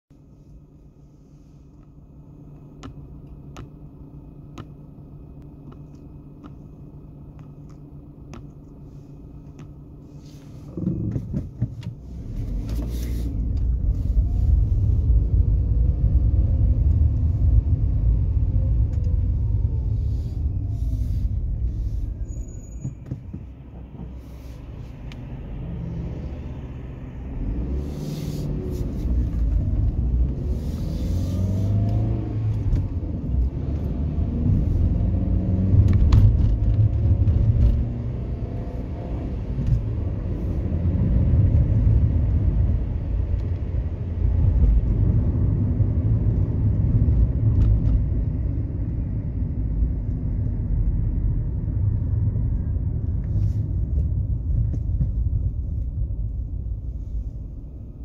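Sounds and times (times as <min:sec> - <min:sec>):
engine and road rumble: 0:00.0 - 0:58.0
car engine idling: 0:00.2 - 0:15.5.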